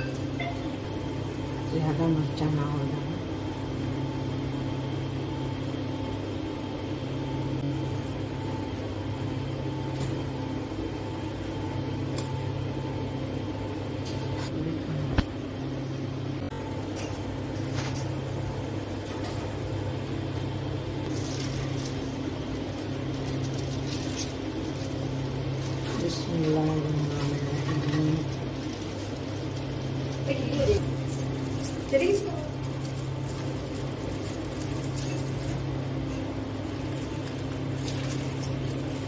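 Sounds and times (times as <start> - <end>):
low machine hum: 0.0 - 39.0.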